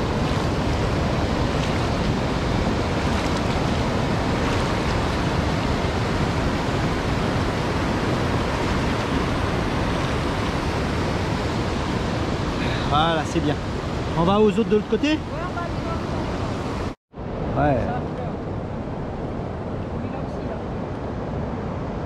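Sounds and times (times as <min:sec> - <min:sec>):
river water rushing over weir: 0:00.0 - 0:17.0.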